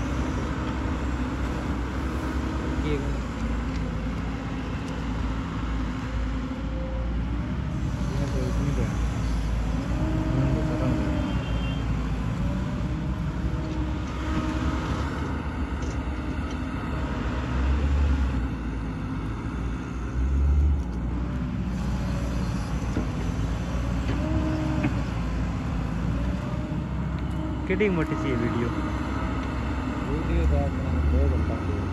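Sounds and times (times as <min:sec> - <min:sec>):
excavator diesel engine: 0:00.0 - 0:31.9
tipper truck engine running: 0:00.0 - 0:31.9
excavator digging wet mud: 0:07.8 - 0:16.4.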